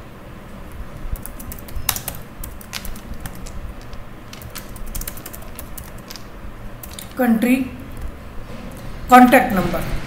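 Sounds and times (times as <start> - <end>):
computer keyboard typing: 1.1 - 7.3.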